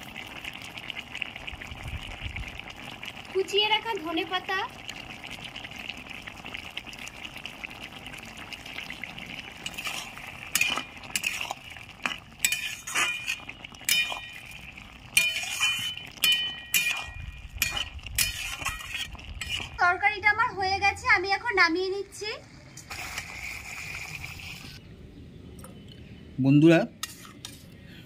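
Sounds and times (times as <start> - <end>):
metal spatula scraping a pan: 9.6 - 14.6, 15.2 - 19.8, 27.0 - 27.7.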